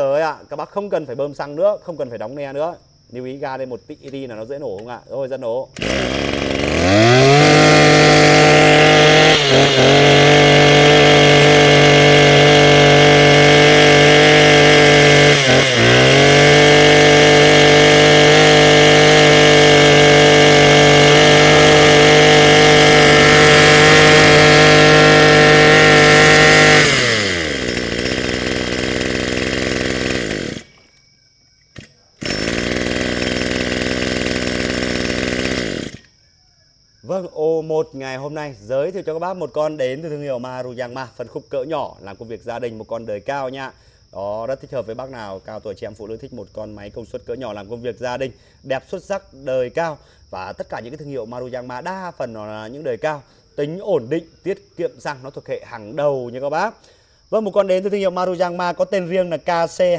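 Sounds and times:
brush cutter engine revving: 5.7 - 31.0, 31.8 - 36.2.

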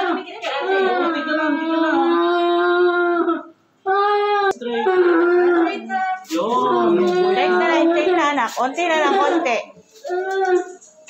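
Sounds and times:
child wailing: 10.0 - 10.8.

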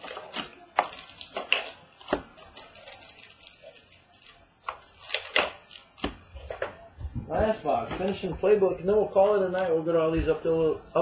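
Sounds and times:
plastic wrap and cardboard crinkling: 0.0 - 6.9.

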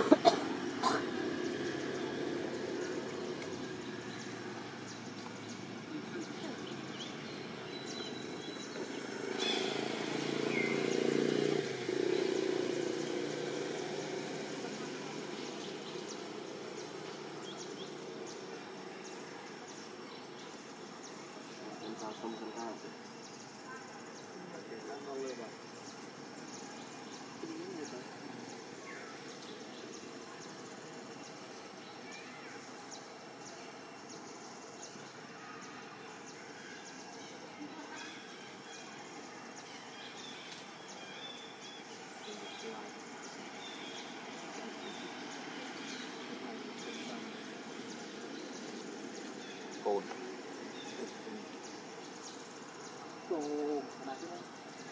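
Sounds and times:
steady forest hiss: 0.0 - 54.9.

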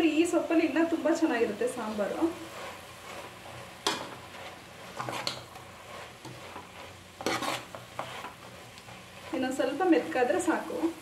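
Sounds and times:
low frying sizzle: 0.0 - 11.0
ladle scraping a pot: 2.5 - 10.2.

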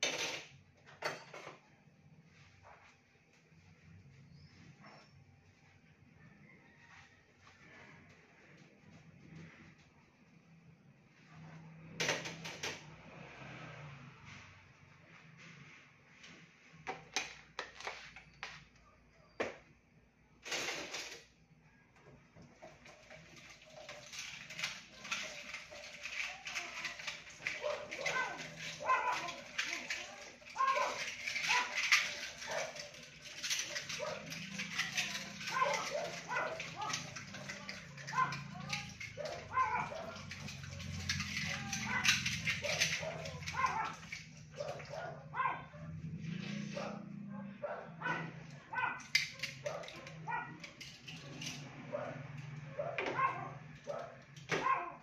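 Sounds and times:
dishes clinking: 0.0 - 1.6, 22.8 - 44.2
tap water running: 22.5 - 45.0.

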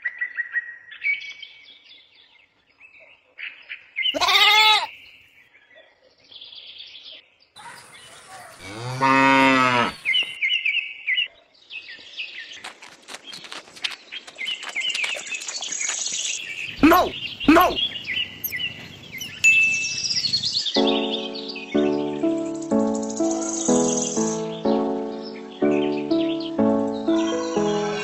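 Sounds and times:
birds chirping: 6.4 - 28.0
cattle mooing: 8.6 - 10.3.

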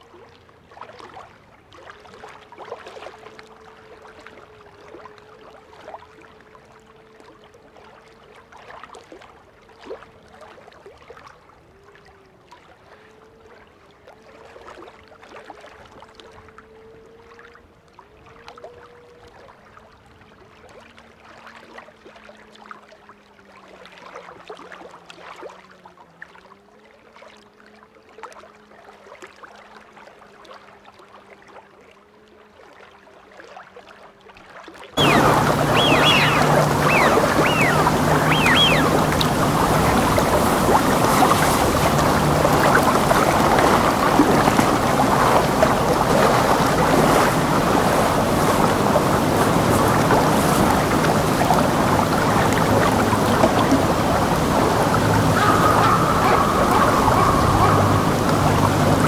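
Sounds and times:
short falling whistles: 35.0 - 39.6
low steady hum: 35.0 - 59.0
waves breaking on shore: 35.0 - 59.0.

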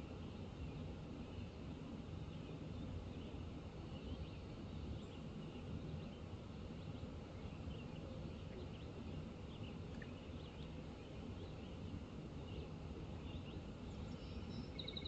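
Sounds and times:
static-like hum of dam: 0.0 - 15.0
faint bird chirps: 12.4 - 15.0.

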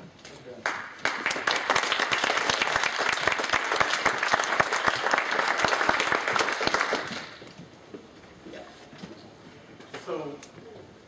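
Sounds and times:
audience applauding: 0.6 - 7.4.

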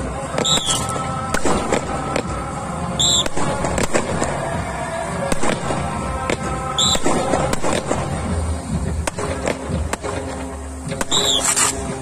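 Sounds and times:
background music: 0.0 - 12.0
short high whistle blast: 0.4 - 0.9, 3.0 - 3.4, 6.8 - 7.0, 11.0 - 11.7.

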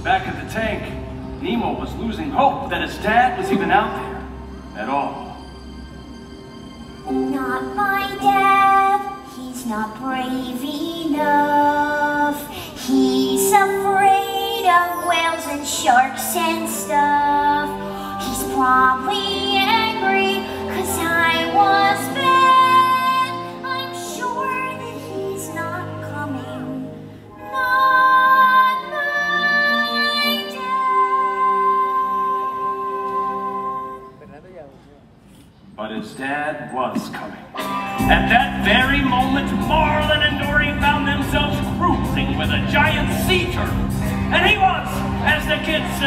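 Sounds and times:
backing music: 0.0 - 34.2, 37.0 - 46.0
high solo singing voice: 7.1 - 26.8.

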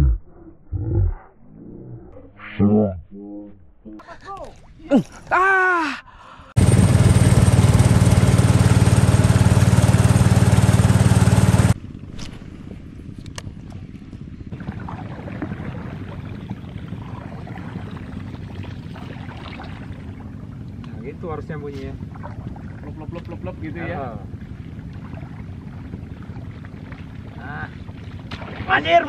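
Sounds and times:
boat engine running loudly: 6.6 - 11.8, 12.8 - 29.0.

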